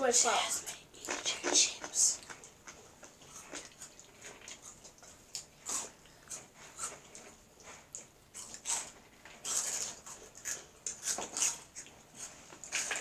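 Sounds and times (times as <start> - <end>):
crunchy snacks being chewed: 1.0 - 13.0.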